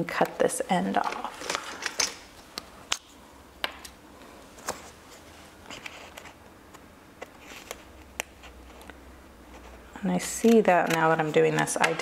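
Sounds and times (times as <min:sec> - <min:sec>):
handling paper and tape: 0:07.2 - 0:12.0.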